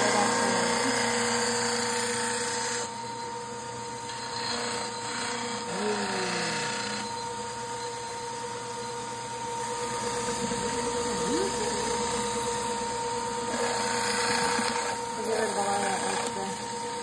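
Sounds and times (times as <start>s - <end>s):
trimmer motor humming: 0.0s - 3.2s, 3.9s - 17.0s
stone grinding on wheel: 13.4s - 16.4s.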